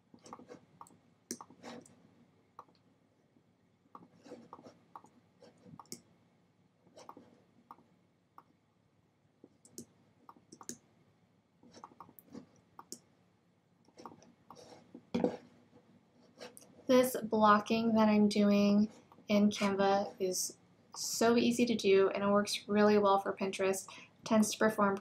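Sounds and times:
computer mouse clicks: 0.2 - 2.0, 2.6 - 2.8, 4.0 - 6.1, 7.0 - 8.5, 9.5 - 10.8, 11.7 - 13.1.

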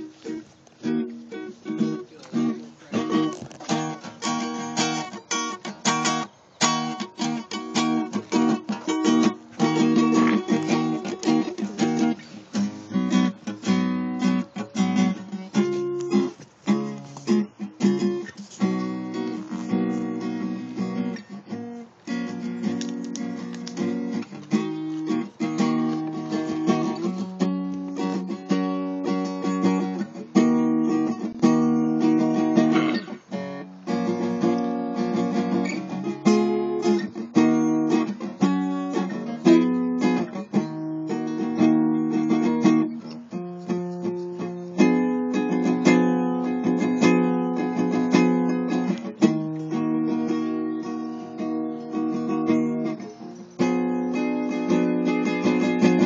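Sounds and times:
acoustic guitar strumming chords: 0.0 - 56.0.

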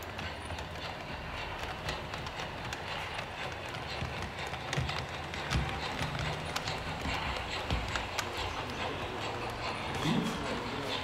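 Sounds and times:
locomotive engine hum: 0.0 - 11.0
model train clicking clatter: 0.0 - 11.0.

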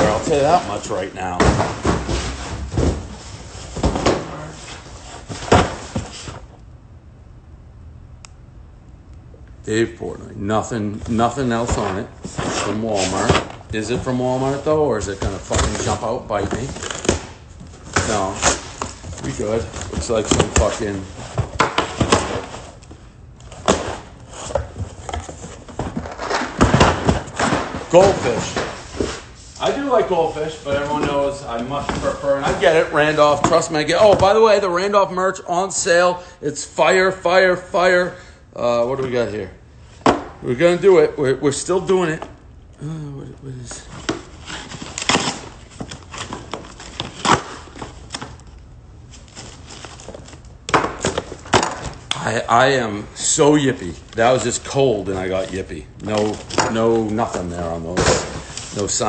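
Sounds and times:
cardboard and paper rustling: 0.0 - 6.4, 11.0 - 34.6, 43.7 - 52.4, 53.6 - 59.0
cardboard scrape: 11.6 - 13.5.

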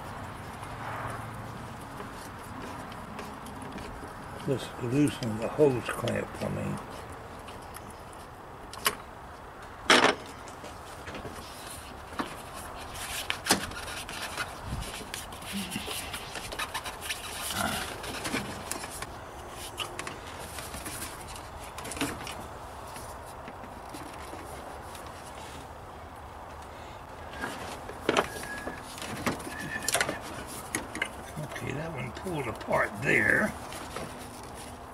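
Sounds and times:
clicks and scraping: 9.9 - 25.5, 27.3 - 34.8.

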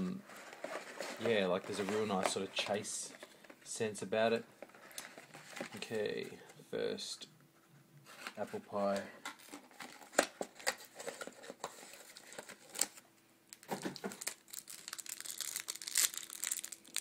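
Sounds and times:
cellophane wrapper crinkling: 9.3 - 17.0.

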